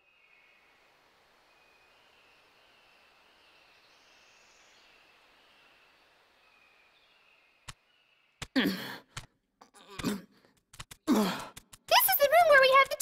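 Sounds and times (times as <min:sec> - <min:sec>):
soft hiss: 0:00.0 - 0:08.4.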